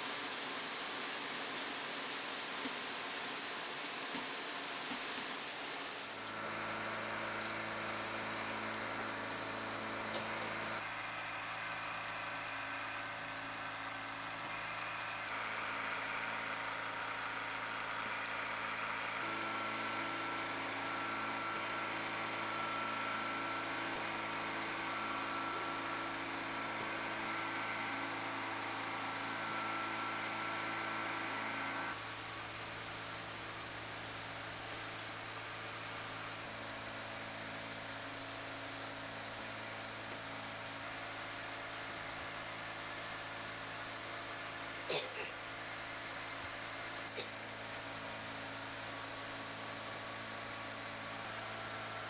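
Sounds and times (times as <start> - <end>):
high machine whine: 5.9 - 52.0
factory machines humming: 6.1 - 32.0.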